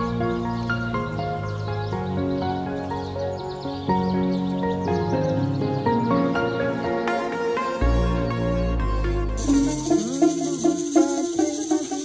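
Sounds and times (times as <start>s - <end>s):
slow instrumental music: 0.0s - 12.0s.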